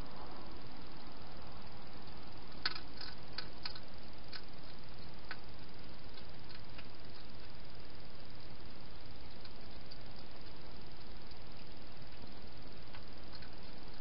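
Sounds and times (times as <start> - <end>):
steady hiss: 0.0 - 14.0
hedgehog chewing clicks: 2.1 - 14.0.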